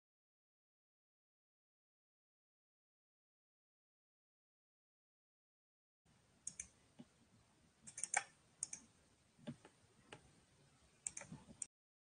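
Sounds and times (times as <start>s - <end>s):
faint microphone hiss: 6.1s - 11.7s
computer keyboard clicks: 7.9s - 8.8s, 11.0s - 11.7s.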